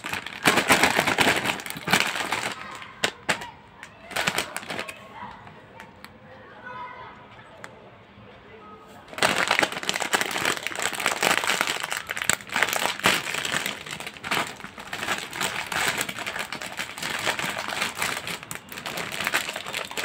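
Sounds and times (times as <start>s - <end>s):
foil snack bag crinkling: 0.0s - 3.5s, 4.1s - 5.0s, 9.1s - 20.0s.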